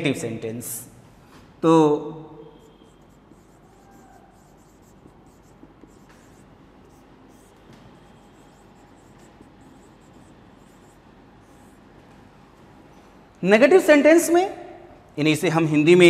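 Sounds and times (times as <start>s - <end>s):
marker pen writing on whiteboard: 2.5s - 12.8s.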